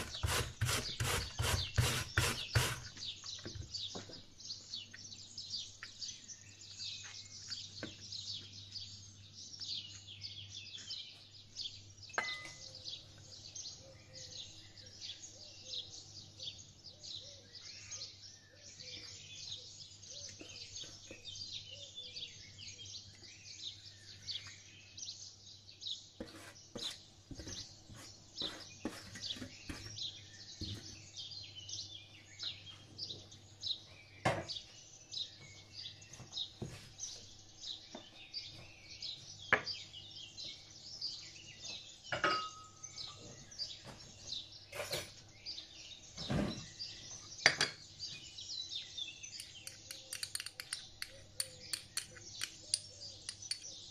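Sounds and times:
small birds chirping: 0.0s - 53.9s
clinks of tray bowl and spoon: 12.2s - 12.7s, 42.2s - 42.8s.

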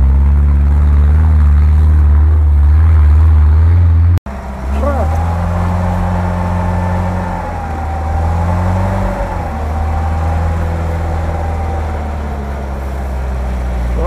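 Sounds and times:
engine running low: 0.0s - 14.0s
winch motor whining: 4.3s - 14.0s.

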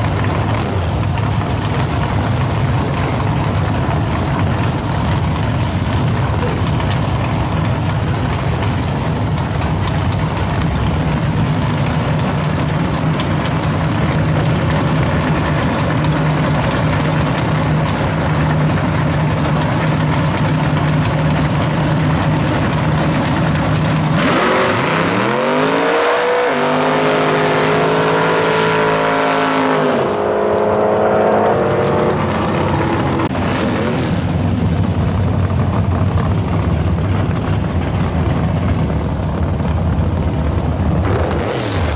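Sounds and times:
racing car engine revving: 23.2s - 34.5s, 40.9s - 41.9s.

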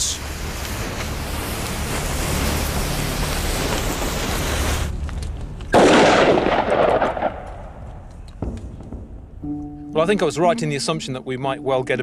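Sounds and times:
steady hiss: 0.0s - 5.6s.

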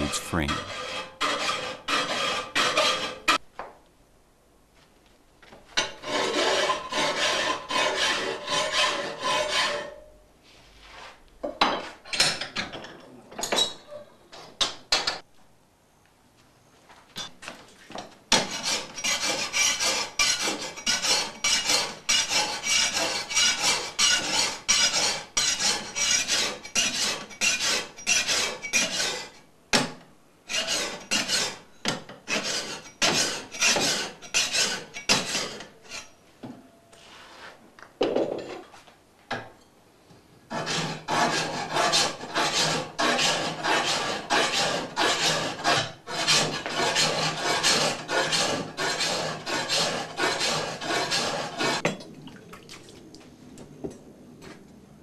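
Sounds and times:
hand file rasping on steel: 0.0s - 3.4s, 5.9s - 10.0s, 18.3s - 29.4s, 30.5s - 31.6s, 32.3s - 36.2s, 40.5s - 51.8s.

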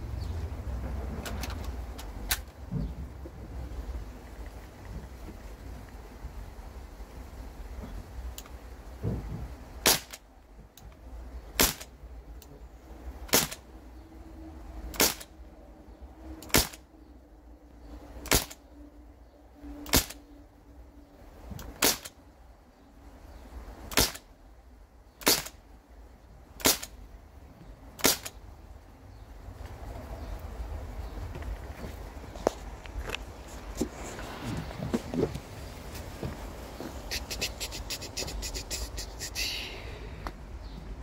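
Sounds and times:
air rifle shots: 9.8s - 10.2s, 11.5s - 12.0s, 13.2s - 13.7s, 14.9s - 15.3s, 16.4s - 16.8s, 18.2s - 18.6s, 19.9s - 20.2s, 21.6s - 22.2s, 23.9s - 24.3s, 25.2s - 25.6s, 26.6s - 27.0s, 28.0s - 28.4s.

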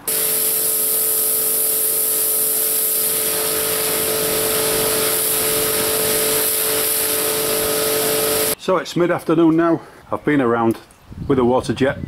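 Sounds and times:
pressure washer pump motor hum: 0.0s - 8.6s
water jet spraying on stone: 0.0s - 8.6s.

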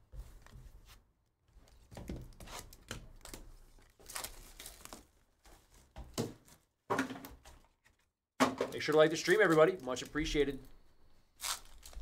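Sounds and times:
foil wrapper crinkling and tearing: 3.2s - 5.2s, 8.9s - 10.7s, 11.4s - 12.0s.

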